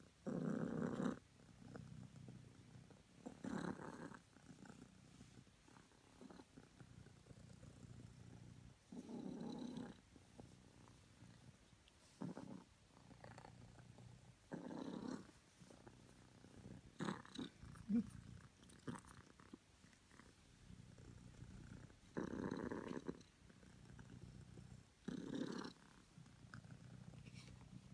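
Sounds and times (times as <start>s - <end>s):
cat purring: 0.0s - 27.9s
rustling: 25.8s - 27.9s.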